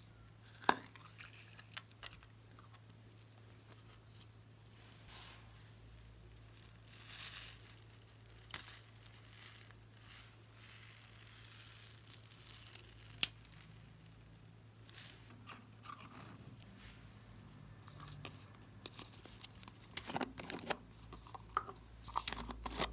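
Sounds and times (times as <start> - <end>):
plastic bag crinkling: 6.0 - 16.7.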